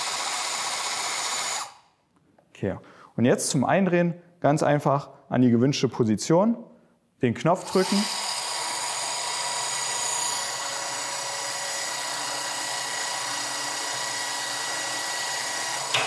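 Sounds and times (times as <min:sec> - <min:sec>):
machine motor whining: 0:07.6 - 0:16.0.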